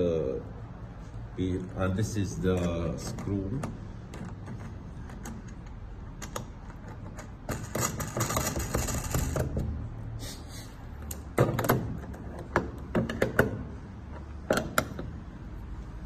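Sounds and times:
rustling and scraping: 6.5 - 9.8.

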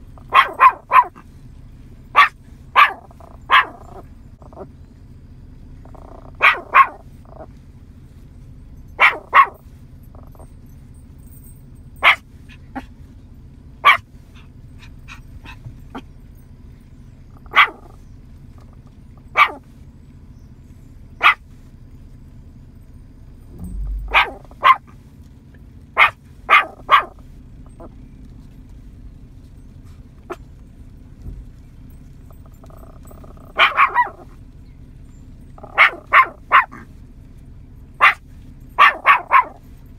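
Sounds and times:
small dog barking: 0.0 - 1.3, 2.1 - 4.7, 5.8 - 7.5, 8.9 - 10.5, 12.0 - 13.0, 13.8 - 16.2, 17.3 - 19.7, 21.2 - 21.6, 23.5 - 25.0, 25.9 - 28.0, 30.2 - 30.5, 32.3 - 34.4, 35.6 - 37.0, 37.9 - 39.8.

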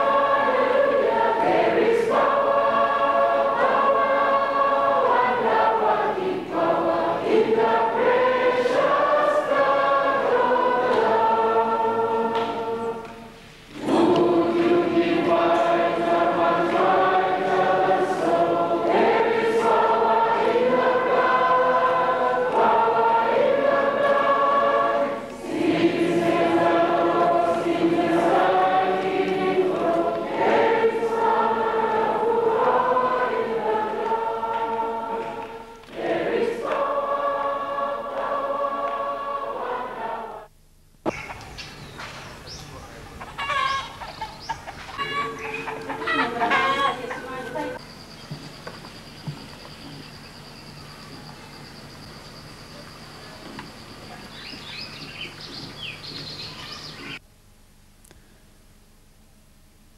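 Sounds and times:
choir singing a hymn: 0.0 - 40.5, 44.3 - 47.8.

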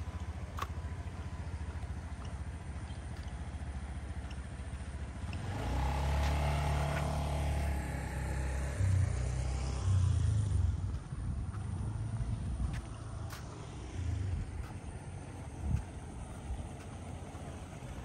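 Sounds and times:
vehicle engine passing by: 4.2 - 18.0.

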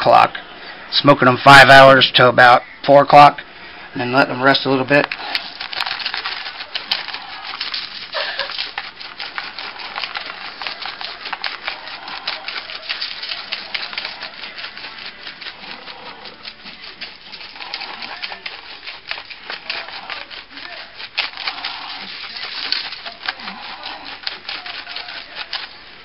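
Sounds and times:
dry rub sprinkled on foil: 4.5 - 26.0.

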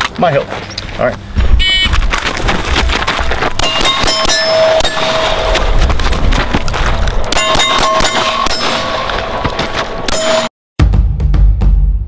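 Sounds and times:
pistol shots: 3.6 - 5.5
steel plate ringing clang: 3.6 - 5.7, 7.2 - 10.5.

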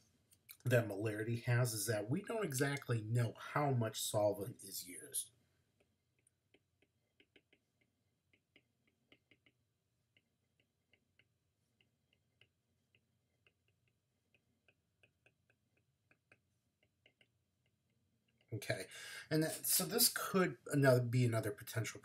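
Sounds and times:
stylus tapping glass screen: 5.8 - 18.5.

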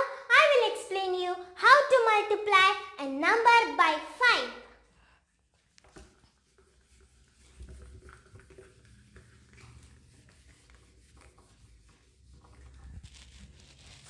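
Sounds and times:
duster rubbing on whiteboard: 5.9 - 14.0.

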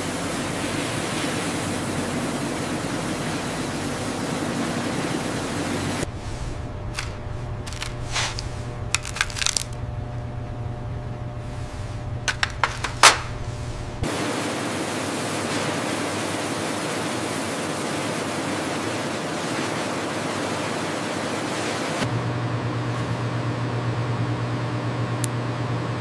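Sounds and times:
water spray hissing: 0.0 - 9.4
low hum: 6.0 - 14.1.

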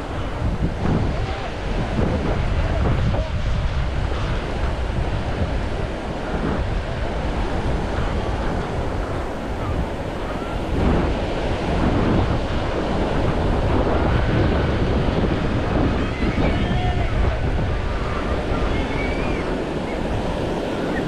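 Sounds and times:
waves washing onto beach: 0.0 - 21.0
wind buffeting microphone: 0.0 - 21.0.

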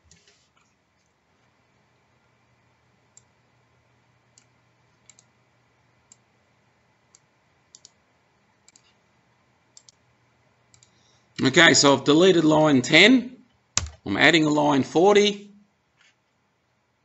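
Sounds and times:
computer mouse clicks: 0.0 - 1.1, 4.3 - 5.3, 6.1 - 6.3, 7.1 - 8.0, 8.6 - 9.0, 9.7 - 10.0, 10.7 - 11.0.

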